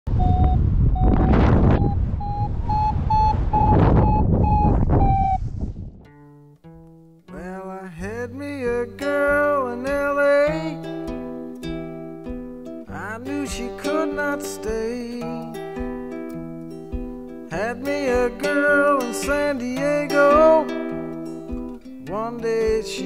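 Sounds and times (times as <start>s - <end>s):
wind buffeting microphone: 0.1s - 6.1s
variometer beeping: 0.2s - 5.4s
plucked guitar: 6.0s - 23.0s
person singing: 7.3s - 11.3s, 12.9s - 15.7s, 17.5s - 23.0s.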